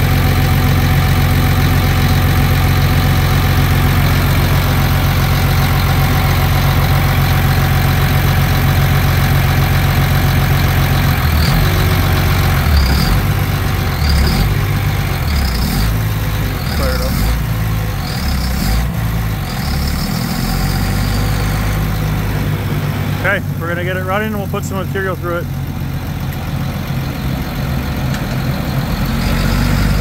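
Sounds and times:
diesel engine idling: 0:00.0 - 0:30.0.

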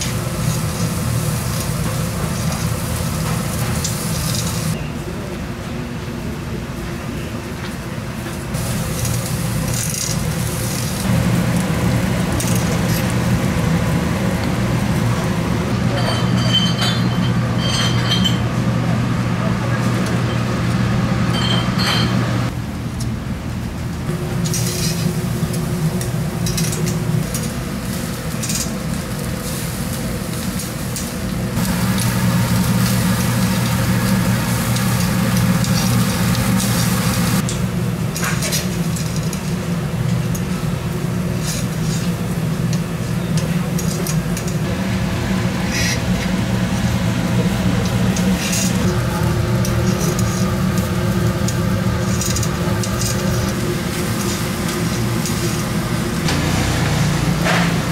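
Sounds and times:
food sizzling: 0:00.0 - 0:04.8, 0:08.6 - 0:15.7, 0:24.1 - 0:37.5, 0:44.7 - 0:57.9
steady low hum: 0:08.5 - 0:57.9
utensils and dishes clinking: 0:15.8 - 0:18.6, 0:21.3 - 0:22.3, 0:26.0 - 0:27.6, 0:32.8 - 0:40.5.

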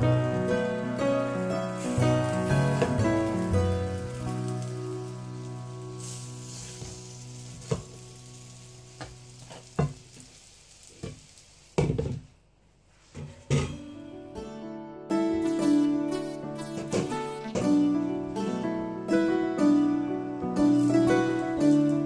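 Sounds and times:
rolls sizzling in oil: 0:00.0 - 0:14.1, 0:15.5 - 0:22.0
utensils knocking on pan: 0:07.6 - 0:08.0, 0:09.0 - 0:10.1, 0:13.2 - 0:13.9.

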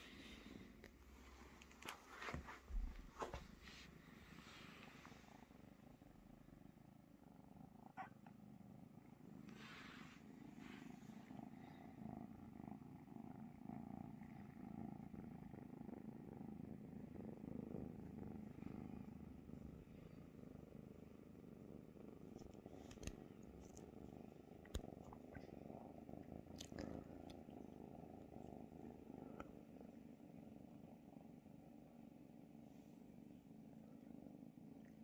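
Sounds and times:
kitten purring: 0:00.0 - 0:35.0
rustle of fur: 0:01.1 - 0:05.5, 0:09.4 - 0:11.4.

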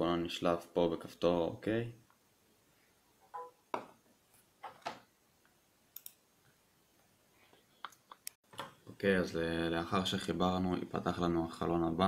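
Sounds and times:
brief electronic tone: 0:03.3 - 0:03.6
faint clicks and taps: 0:04.6 - 0:09.0.

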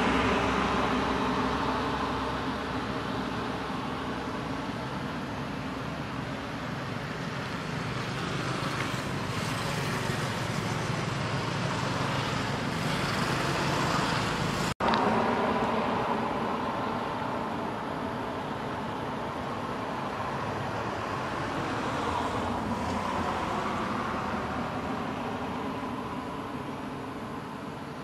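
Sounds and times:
low traffic-like rumble: 0:00.0 - 0:28.0.

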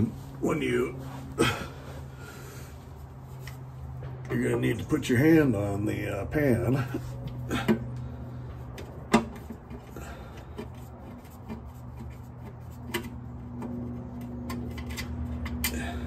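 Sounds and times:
steady low hum: 0:00.0 - 0:16.0
metallic ticks of hand tools: 0:09.7 - 0:15.9.

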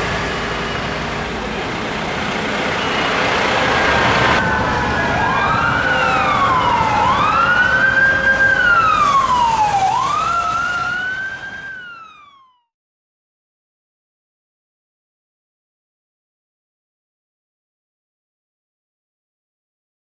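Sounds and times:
street traffic rumble: 0:00.0 - 0:12.4
emergency vehicle siren wailing: 0:00.0 - 0:12.7.

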